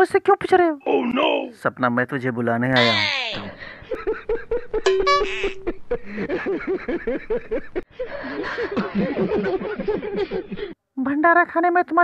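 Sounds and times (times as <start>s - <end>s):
man chuckling and giggling: 3.4s - 10.8s.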